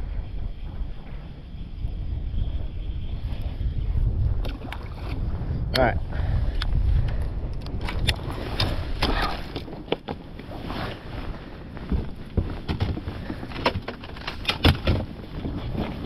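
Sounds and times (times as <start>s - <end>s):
footsteps and gear on deck: 0.0s - 5.2s, 6.4s - 16.0s
wind on microphone: 0.0s - 16.0s
water slapping boat hull: 4.4s - 5.5s.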